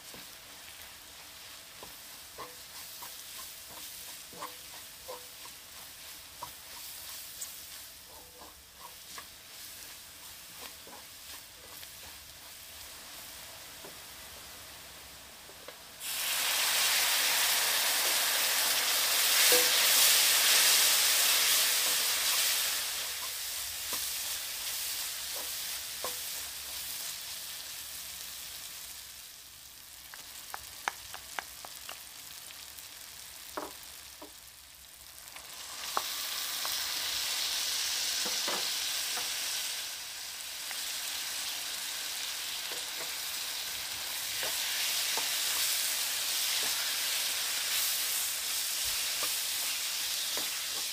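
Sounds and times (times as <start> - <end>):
water sizzling in hot wok: 0.0 - 50.9
wooden spoon tapping pan: 33.5 - 34.4.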